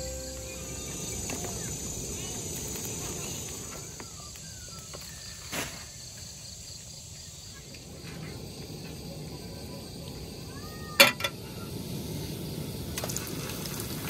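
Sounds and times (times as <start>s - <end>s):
low background hiss: 0.0s - 3.8s
insects chirring: 0.0s - 14.0s.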